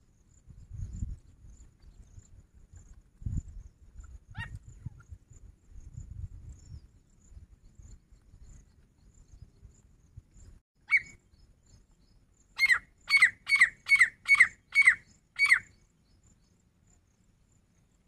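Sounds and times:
francolin calling: 10.8s - 16.2s.

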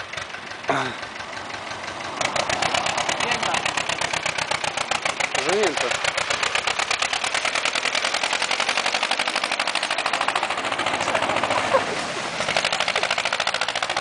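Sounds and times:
tractor diesel engine clatter: 0.0s - 14.0s
sharp engine knock: 12.5s - 14.0s.

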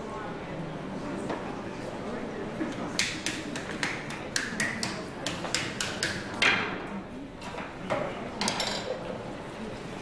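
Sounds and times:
wooden paddle tapping clay: 3.0s - 6.6s.

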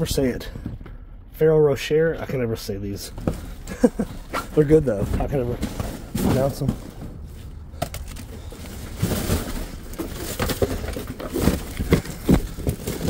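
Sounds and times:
cardboard boxes being handled: 3.1s - 13.0s
rustling packaging: 4.2s - 13.0s.

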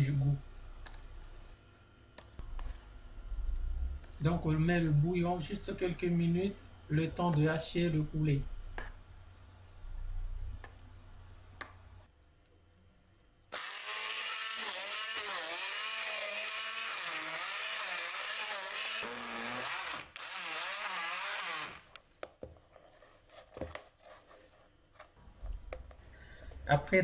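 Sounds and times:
stick blender running: 13.5s - 22.0s.

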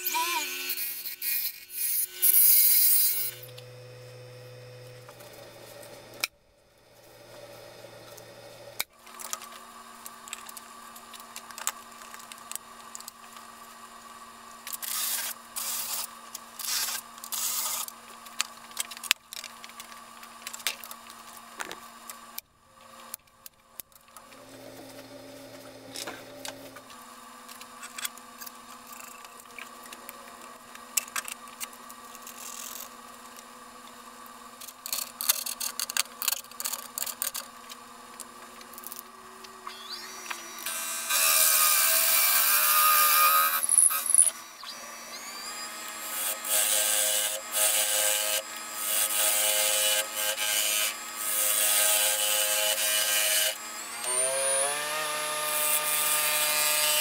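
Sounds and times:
wood lathe motor hum: 0.0s - 6.3s, 24.2s - 27.0s, 39.4s - 57.0s
gouge cutting wood: 39.7s - 57.0s
power sanding wood: 39.8s - 57.0s.

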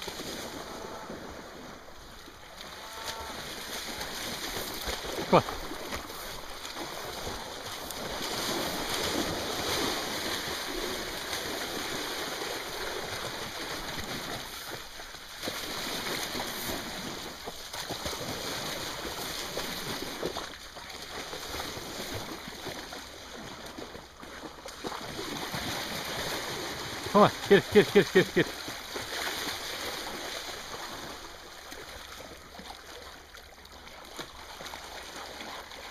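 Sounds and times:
small river flowing: 0.0s - 35.9s.

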